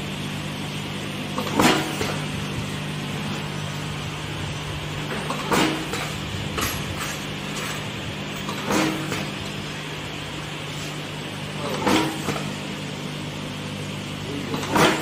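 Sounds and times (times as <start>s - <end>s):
machine humming: 0.0s - 15.0s.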